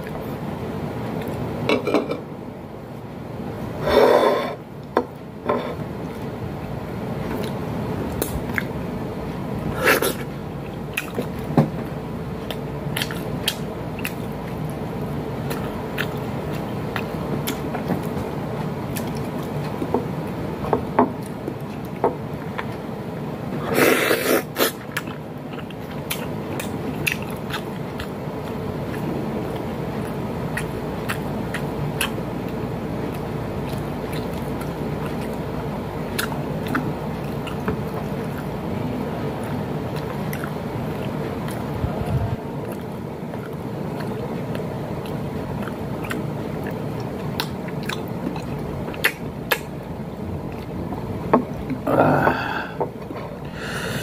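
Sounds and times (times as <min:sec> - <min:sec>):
room hum: 0:00.0 - 0:54.0
chewing and mouth noises: 0:01.0 - 0:01.5, 0:07.2 - 0:22.9, 0:23.6 - 0:51.9
scrapes on ceramic plate: 0:03.8 - 0:04.6.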